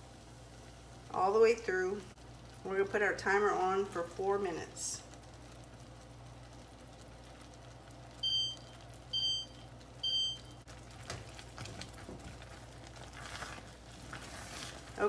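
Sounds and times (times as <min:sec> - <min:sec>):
electronic timer beeps: 0:08.2 - 0:10.6.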